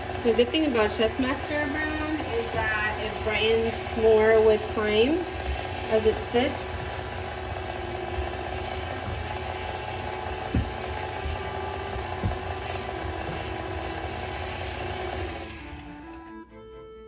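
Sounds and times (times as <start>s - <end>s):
stand mixer motor whirring: 0.0s - 16.3s
whisk knocking bowl: 2.4s - 15.6s.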